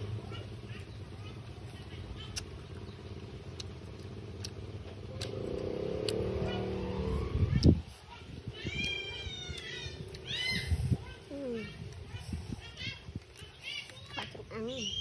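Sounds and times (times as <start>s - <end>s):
vehicle engine: 0.0s - 14.8s
high repeated animal calls: 8.5s - 11.7s.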